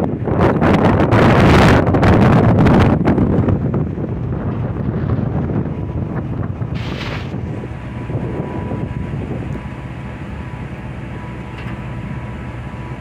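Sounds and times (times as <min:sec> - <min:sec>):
boat engine rumbling: 0:00.0 - 0:13.0
wind on microphone: 0:00.0 - 0:13.0
short hiss: 0:06.8 - 0:07.4.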